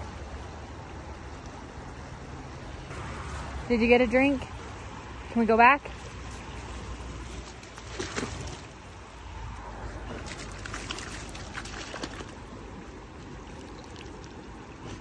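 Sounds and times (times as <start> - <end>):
dog splashing in water: 7.0 - 8.9, 9.9 - 12.6.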